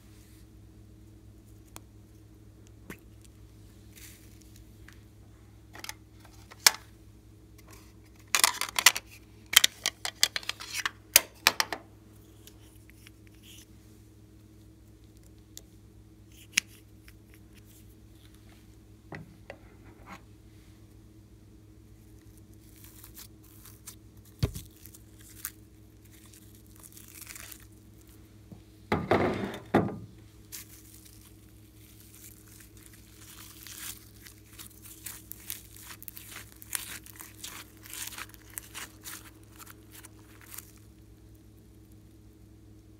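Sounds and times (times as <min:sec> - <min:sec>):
slime sticky crackling: 0:22.0 - 0:28.2, 0:30.4 - 0:42.1.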